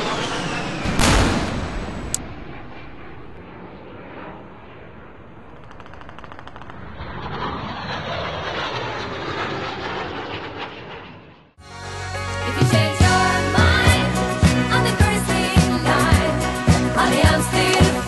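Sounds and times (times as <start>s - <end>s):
explosion rumbling: 0.0s - 3.8s
explosion crack: 0.8s - 3.4s.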